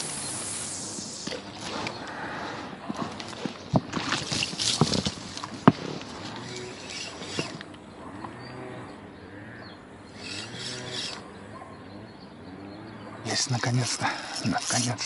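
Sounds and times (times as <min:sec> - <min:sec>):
spinning reel whirring: 0:06.3 - 0:07.7, 0:10.1 - 0:11.3, 0:13.8 - 0:15.0.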